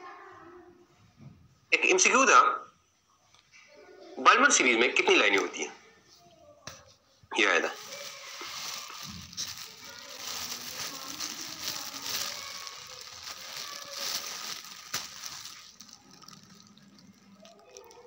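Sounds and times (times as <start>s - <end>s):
faint voices: 5.8s - 18.0s.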